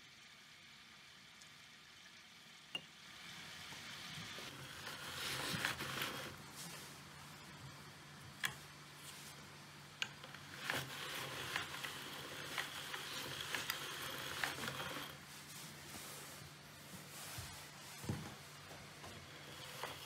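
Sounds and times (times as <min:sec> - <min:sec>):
noodle cutter rubbing and clicking: 0:10.0 - 0:15.2.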